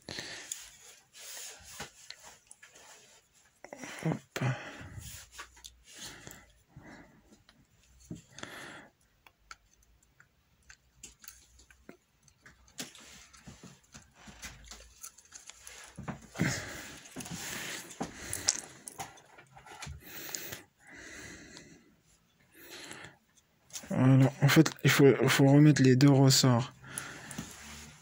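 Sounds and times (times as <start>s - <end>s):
soft breaths: 0.0s - 9.3s, 12.8s - 23.5s, 26.7s - 28.0s.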